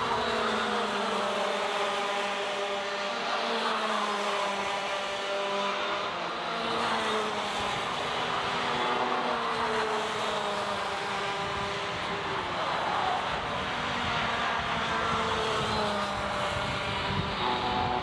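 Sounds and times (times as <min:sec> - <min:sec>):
racing kart engines revving: 0:00.0 - 0:18.0.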